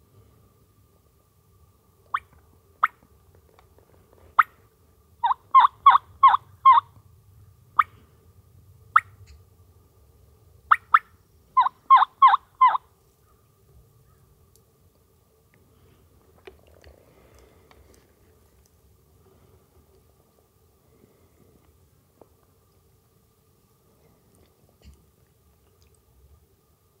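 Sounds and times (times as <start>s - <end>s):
turkey clucks: 2.1s - 3.0s, 4.3s - 4.5s, 5.2s - 6.9s, 10.7s - 12.8s
turkey yelps: 5.2s - 6.9s, 10.7s - 12.8s.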